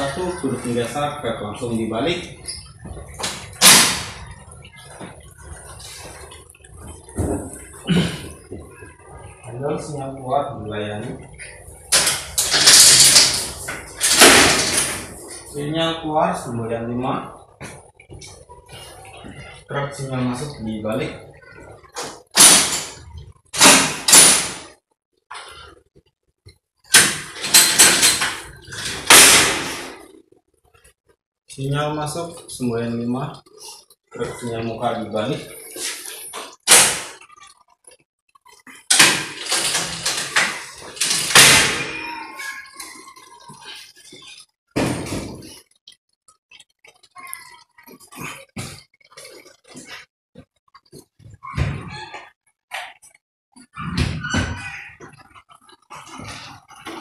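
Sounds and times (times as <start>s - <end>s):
signal levers clanking and rattling: 11.9s - 15.3s, 26.9s - 30.0s, 38.9s - 43.2s.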